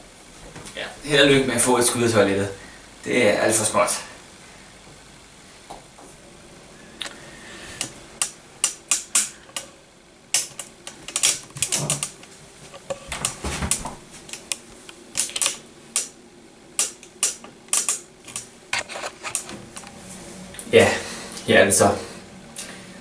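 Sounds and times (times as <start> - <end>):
sharp clicks and knocks: 7.8 - 9.7, 10.3 - 16.1, 16.8 - 20.0.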